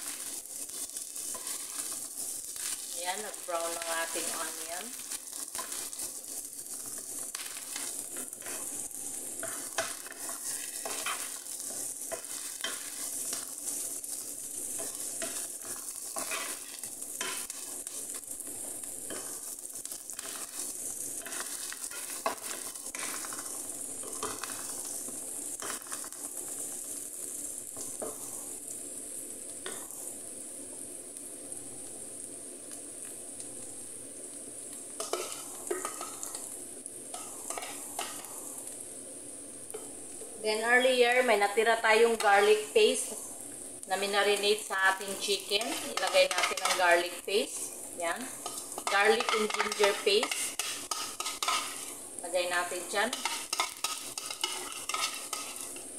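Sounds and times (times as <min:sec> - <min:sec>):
wooden spatula scraping pan: 0:00.0 - 0:08.8, 0:09.4 - 0:13.9, 0:14.7 - 0:18.2, 0:45.0 - 0:47.1, 0:48.4 - 0:51.9, 0:53.0 - 0:55.9
onions sizzling in oil: 0:00.0 - 0:55.9.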